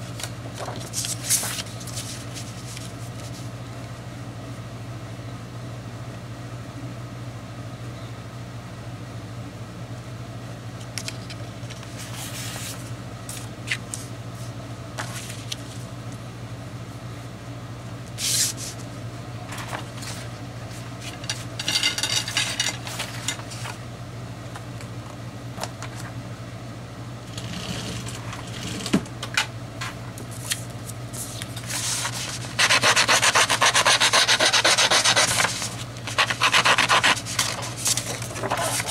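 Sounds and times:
steady low hum: 0.0 - 38.9
paper rustling and sliding: 0.2 - 3.5, 11.7 - 15.8, 19.5 - 21.1, 30.3 - 38.9.

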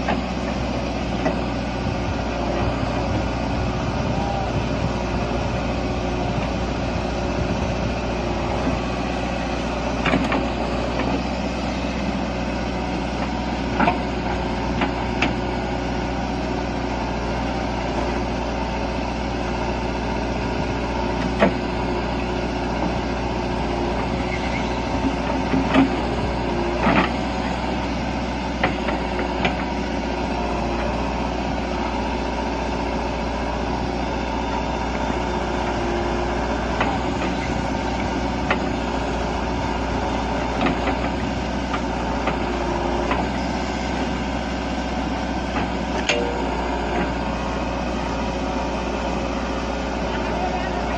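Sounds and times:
diesel engine running: 0.0 - 50.9.

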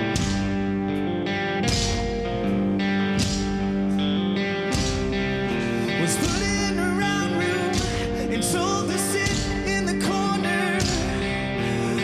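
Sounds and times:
electric guitar chords: 0.0 - 12.0
drums and crashing cymbals: 0.1 - 0.6, 1.7 - 2.3, 3.2 - 3.8, 4.7 - 5.4, 7.8 - 8.1, 10.8 - 11.5.

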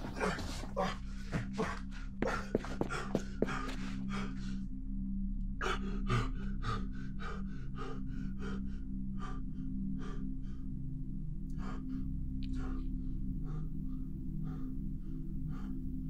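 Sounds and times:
person panting: 0.0 - 4.6, 5.6 - 10.6
low steady drone: 0.0 - 16.0.

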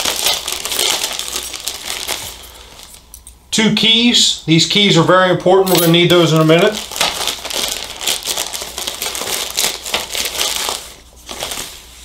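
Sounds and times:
plastic bags crinkling: 0.0 - 3.3, 5.7 - 12.0.

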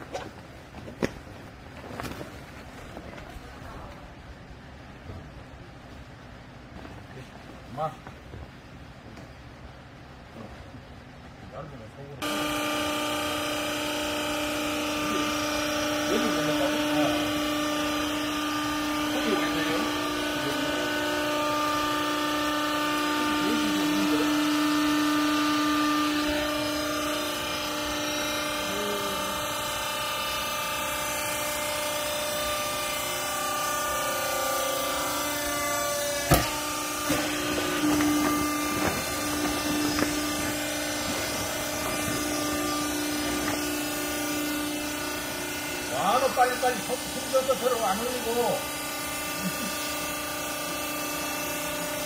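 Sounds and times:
hydraulic machine humming: 12.2 - 52.0
sharp knocks: 36.2 - 43.7.

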